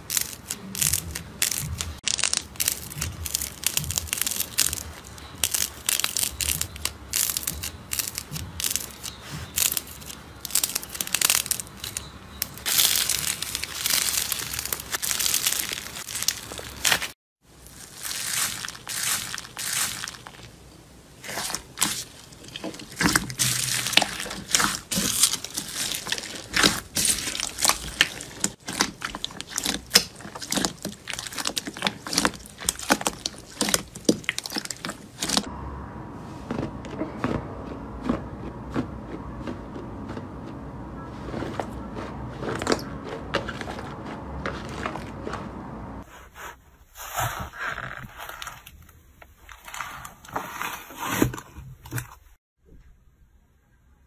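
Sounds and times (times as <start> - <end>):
fluffy slime pressed and peeled: 0.0 - 20.6, 21.2 - 35.5
slime crackling with beads: 0.0 - 20.6, 21.2 - 35.5
sticky slime pulling: 0.0 - 20.6, 21.2 - 35.5.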